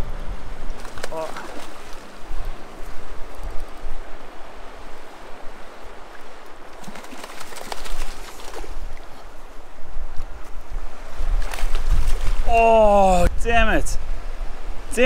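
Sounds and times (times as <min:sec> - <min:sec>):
wind buffeting microphone: 0:00.0 - 0:15.0
river rushing over riffle: 0:00.7 - 0:09.6.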